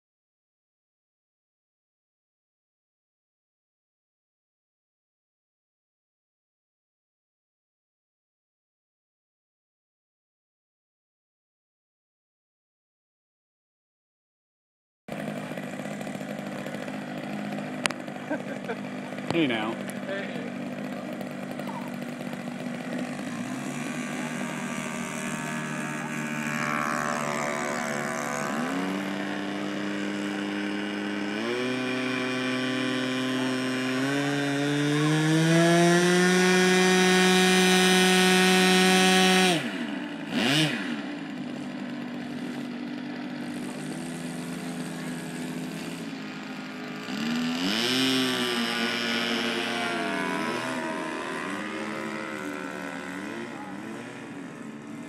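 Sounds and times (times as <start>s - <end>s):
model airplane engine: 15.1s - 55.0s.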